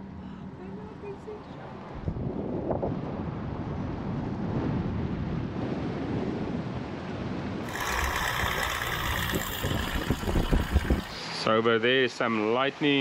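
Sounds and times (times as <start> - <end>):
wind buffeting microphone: 1.9 - 11.3.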